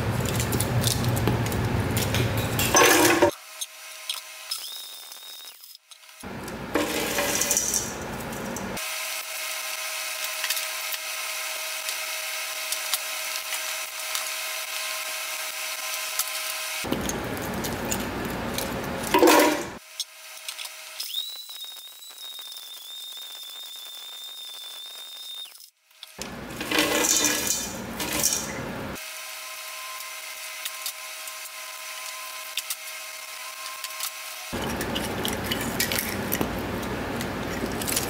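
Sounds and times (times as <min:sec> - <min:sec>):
hard chunks grinding in blender: 0:06.1 - 0:19.8, 0:26.2 - 0:29.0, 0:29.8 - 0:38.0
blender motor running: 0:06.2 - 0:19.4, 0:26.2 - 0:38.0.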